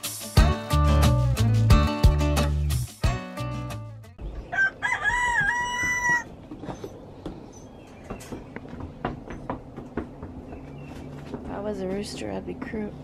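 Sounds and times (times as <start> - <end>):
background music: 0.0 - 4.2
rooster crowing: 4.4 - 6.4.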